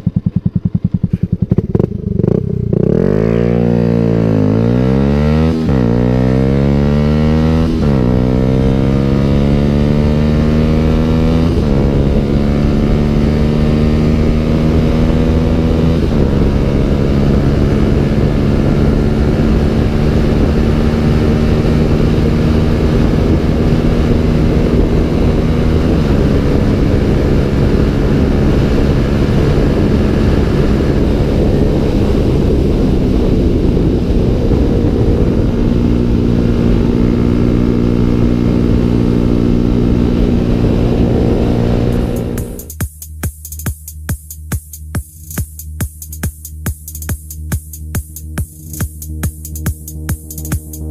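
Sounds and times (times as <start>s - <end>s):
motorcycle engine accelerating: 0.0s - 50.9s
wind rushing over microphone: 1.6s - 42.7s.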